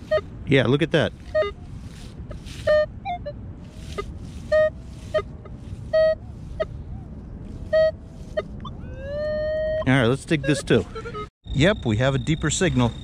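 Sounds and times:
metal detector beeps: 0:00.0 - 0:00.3, 0:01.3 - 0:01.6, 0:02.6 - 0:03.3, 0:04.5 - 0:05.3, 0:05.9 - 0:06.7, 0:07.7 - 0:13.0
metal detector blips: 0:01.3 - 0:01.6, 0:05.9 - 0:06.2, 0:07.7 - 0:08.7.

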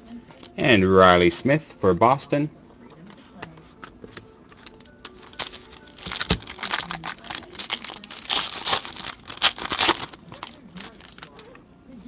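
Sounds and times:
foil wrapper crinkling: 0:04.6 - 0:11.5.

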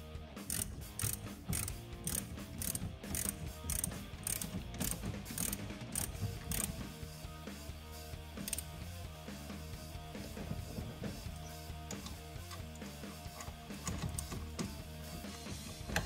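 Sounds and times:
ratchet wrench clicking: 0:00.4 - 0:06.8, 0:08.4 - 0:08.8.

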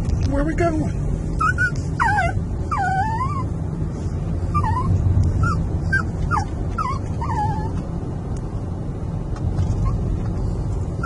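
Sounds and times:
car cabin road rumble: 0:00.0 - 0:11.0
dog whining: 0:01.4 - 0:03.5, 0:04.5 - 0:07.8.

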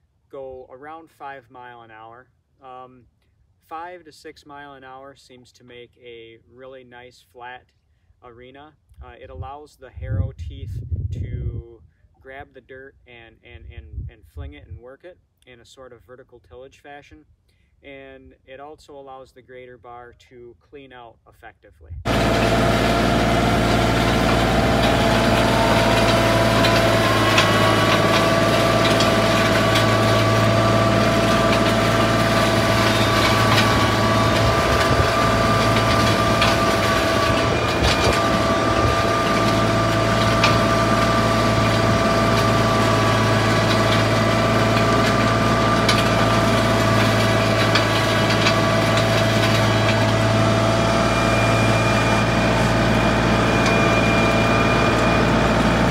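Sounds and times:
tractor engine hum with whine: 0:22.1 - 0:55.9.

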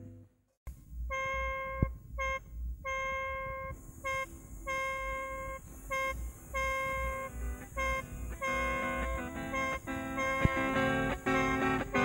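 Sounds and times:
bass notes: 0:00.0 - 0:12.0
buzzy electronic keyboard beeps: 0:01.0 - 0:12.0
high hiss: 0:03.7 - 0:12.0.

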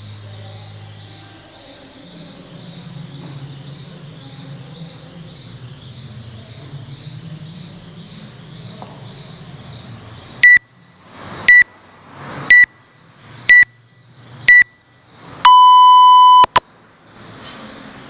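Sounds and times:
long lower timer beep: 0:10.4 - 0:10.6, 0:11.5 - 0:11.7, 0:12.5 - 0:12.7, 0:13.5 - 0:13.8, 0:14.5 - 0:14.8, 0:15.5 - 0:16.6
short high timer beeps: 0:10.4 - 0:10.6, 0:12.5 - 0:12.7, 0:13.5 - 0:13.8, 0:14.5 - 0:14.8, 0:15.5 - 0:16.6.

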